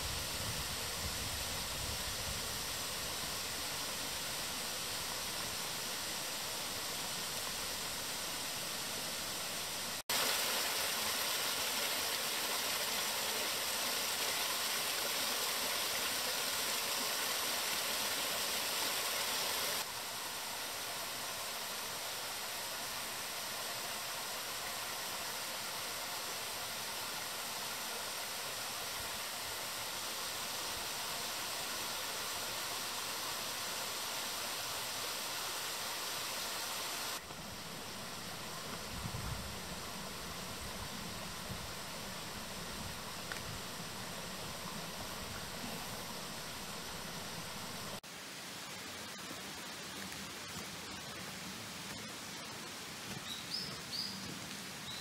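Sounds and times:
stream splashing over rocks: 10.0 - 20.0.

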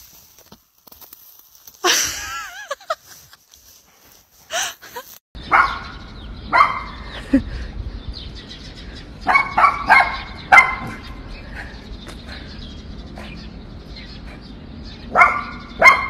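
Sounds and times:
wind rumble on microphone: 5.4 - 15.8
dog barking: 5.5 - 7.0, 9.2 - 11.1, 15.1 - 16.0.

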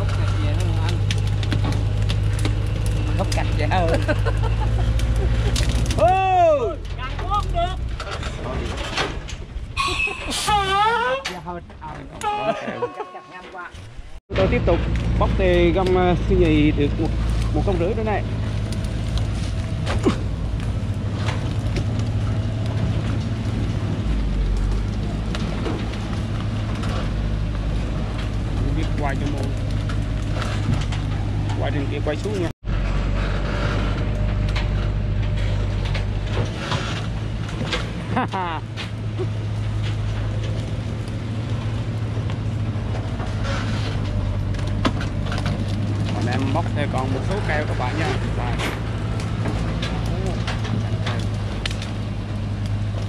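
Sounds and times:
truck engine idling: 0.0 - 8.6
truck engine running: 0.0 - 9.8, 13.9 - 53.0.

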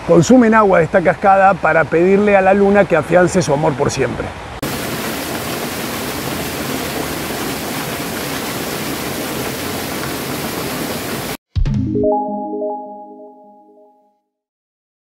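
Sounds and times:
waterfall rushing: 4.6 - 11.4
music: 11.6 - 14.4.

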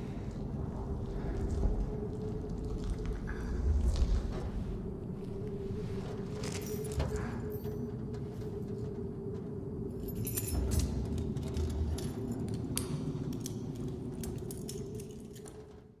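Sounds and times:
steady low hum: 0.0 - 16.0
metallic clinks and jingles: 9.9 - 15.8.

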